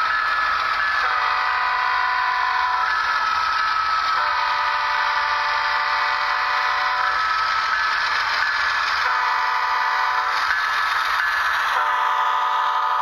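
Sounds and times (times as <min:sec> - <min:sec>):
model locomotive horn blasts: 0:00.9 - 0:03.0, 0:04.1 - 0:07.2, 0:09.0 - 0:10.6, 0:11.6 - 0:13.0.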